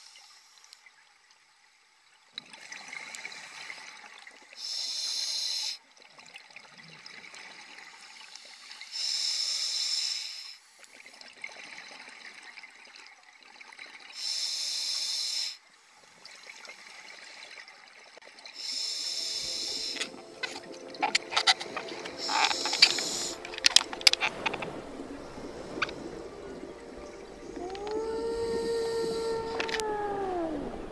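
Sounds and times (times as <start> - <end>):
hissing regulator inhalations: 4.6 - 5.8, 8.3 - 10.6, 14.2 - 15.6, 18.6 - 26.4
bubbling exhalations: 18.9 - 30.9.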